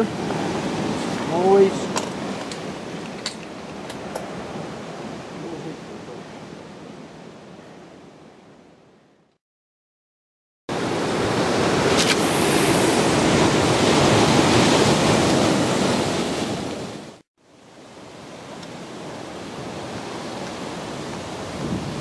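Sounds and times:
waves breaking on rocks: 10.8 - 17.2.

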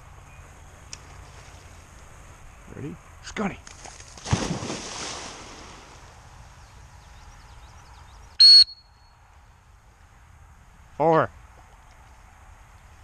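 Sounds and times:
water splashing: 3.8 - 6.3
dog whistle blast: 8.4 - 8.8.

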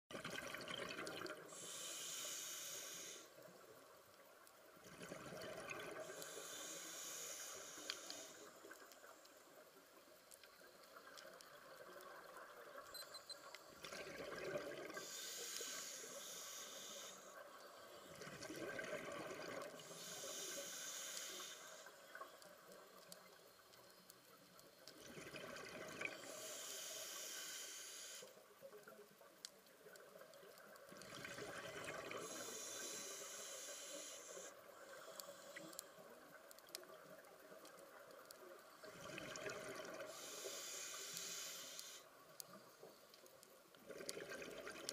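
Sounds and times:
diver breathing through regulator: 1.6 - 3.3, 6.0 - 8.6, 15.0 - 17.4, 19.8 - 22.0, 26.2 - 28.4, 32.1 - 35.8, 40.1 - 42.1.

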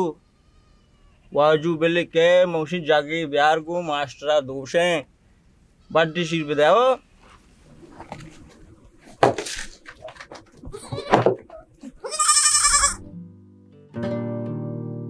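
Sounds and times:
young goat bleating: 0.0 - 1.4, 5.8 - 6.8, 10.6 - 13.1
plucked-string music: 12.7 - 15.0.

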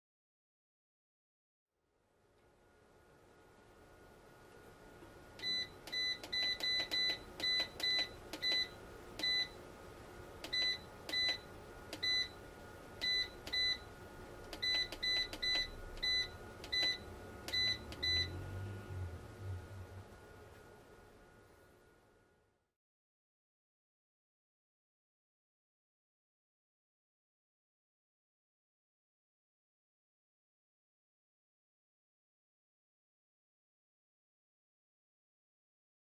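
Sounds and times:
faint steady whine: 1.8 - 22.7
keypad beeps: 5.4 - 9.6, 10.4 - 12.4, 13.0 - 13.9, 14.5 - 18.4.

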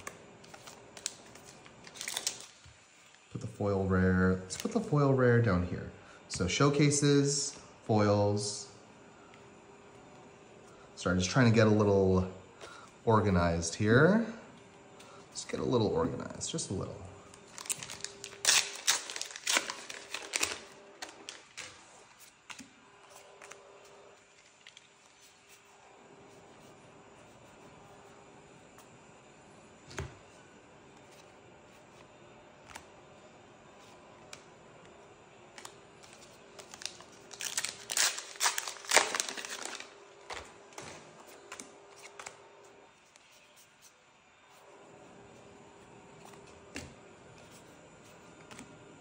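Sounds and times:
foil wrapper crinkling and tearing: 0.0 - 2.6, 17.4 - 21.9, 35.6 - 42.4.

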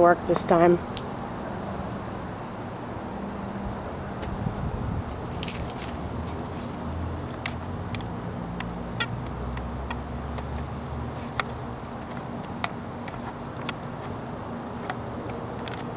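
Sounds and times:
vehicle engine rumbling: 0.0 - 15.9.

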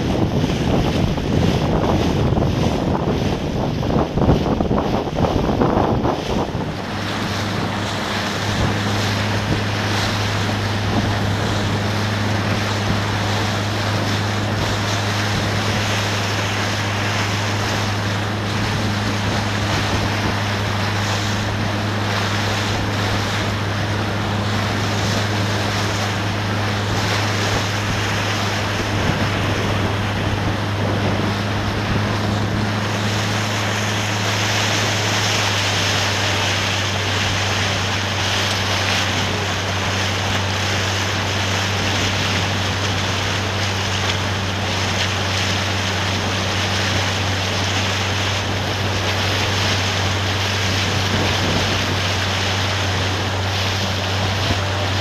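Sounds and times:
motorboat engine humming: 0.0 - 55.0
water rushing: 0.0 - 55.0
wind noise on microphone: 0.0 - 55.0.

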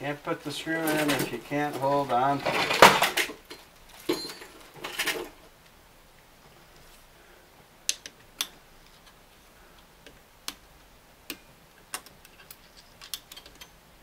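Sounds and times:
screwdriver clicking on metal: 11.3 - 13.8.

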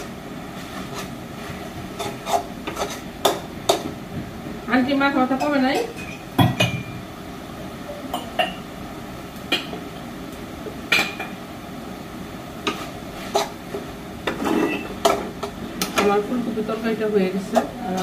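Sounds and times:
metal utensils clinking on pots: 5.3 - 7.0.

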